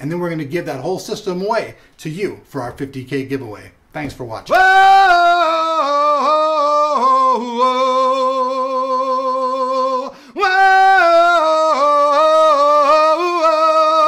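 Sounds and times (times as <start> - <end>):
man singing unaccompanied: 4.5 - 14.0.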